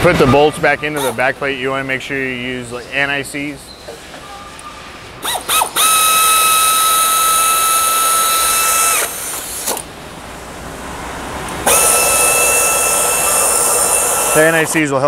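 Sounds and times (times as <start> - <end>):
air ratchet whining: 1.0 - 1.2, 5.2 - 9.9, 11.6 - 14.8.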